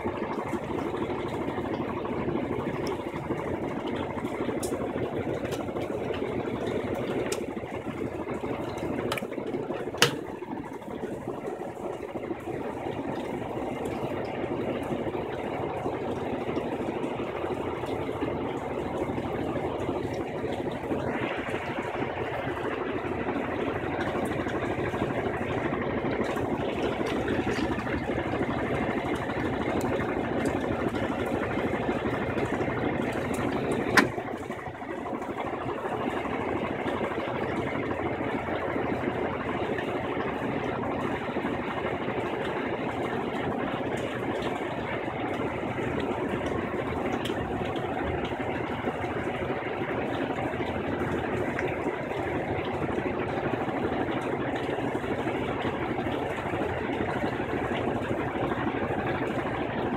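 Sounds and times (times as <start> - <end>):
washing machine spinning: 0.0 - 59.9.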